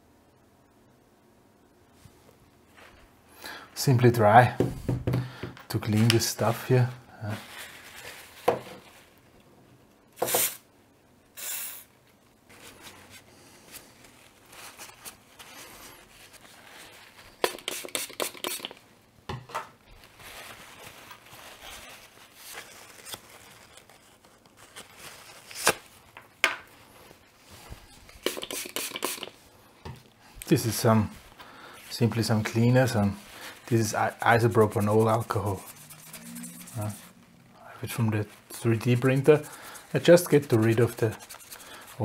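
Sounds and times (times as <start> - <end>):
paper towel rustling and tearing: 5.9 - 9.2, 12.5 - 18.8, 19.8 - 26.2, 30.5 - 42.0.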